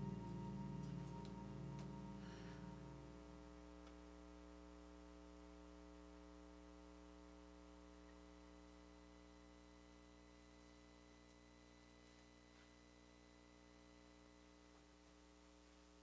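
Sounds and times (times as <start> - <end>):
music: 0.0 - 3.4
faint mains hum: 0.0 - 16.0.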